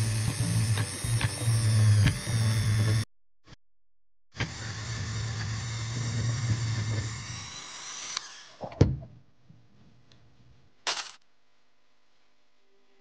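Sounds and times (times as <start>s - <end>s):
rotary tool whirring: 4.4s - 8.6s, 10.9s - 11.2s.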